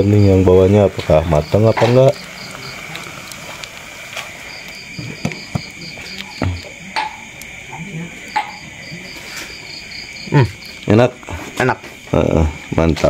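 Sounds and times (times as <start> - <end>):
crickets trilling: 0.0 - 13.0
frogs chirping: 0.0 - 13.0.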